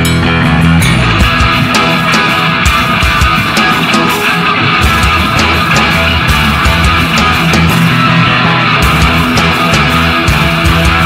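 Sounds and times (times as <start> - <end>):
drum kit: 0.0 - 11.0
electric bass: 0.0 - 11.0
electric guitar: 0.0 - 11.0.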